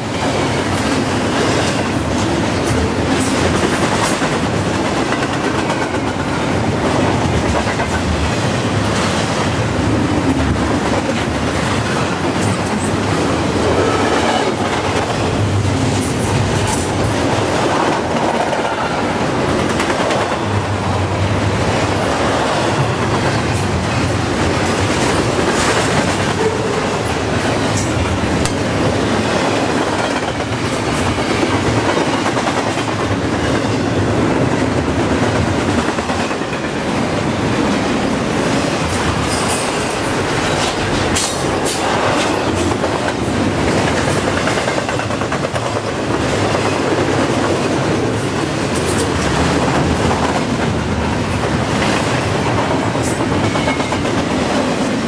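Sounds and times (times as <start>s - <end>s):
steel wheels rumbling on rail: 0.0s - 55.0s.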